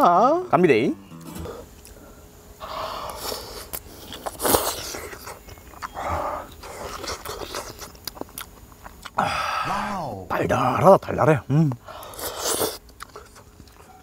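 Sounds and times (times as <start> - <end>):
person chewing food: 3.0 - 9.3, 12.0 - 14.0.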